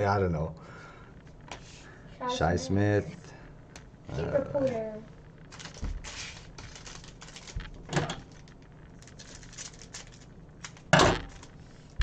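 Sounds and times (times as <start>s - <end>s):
trading cards rustling and clicking: 5.5s - 12.0s.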